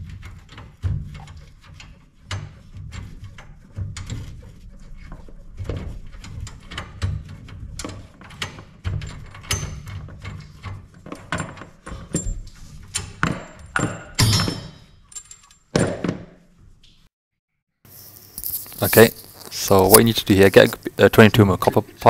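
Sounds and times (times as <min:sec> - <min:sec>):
hose scraping rattle: 0:17.9 - 0:21.0.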